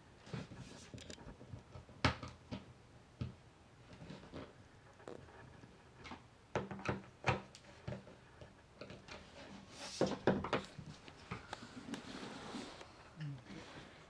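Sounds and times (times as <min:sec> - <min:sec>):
rub across wood: 0:11.6 - 0:13.0.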